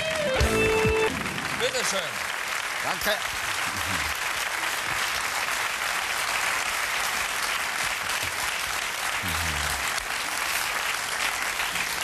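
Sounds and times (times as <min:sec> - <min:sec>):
audience applauding: 0:00.0 - 0:12.0.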